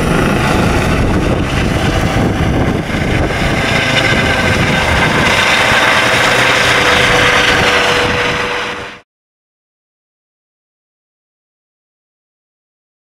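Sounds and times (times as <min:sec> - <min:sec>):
helicopter flying overhead: 0:00.0 - 0:09.0
high turbine whine: 0:00.0 - 0:09.0.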